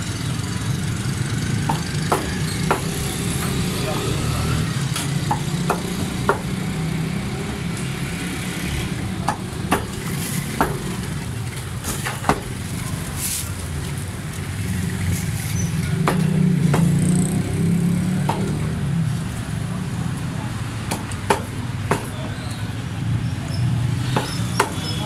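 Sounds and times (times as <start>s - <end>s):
cleavers chopping on wooden blocks: 1.6s - 6.8s, 8.8s - 11.2s, 11.8s - 12.6s, 15.9s - 17.3s, 18.1s - 18.8s, 20.9s - 22.4s, 24.0s - 25.0s.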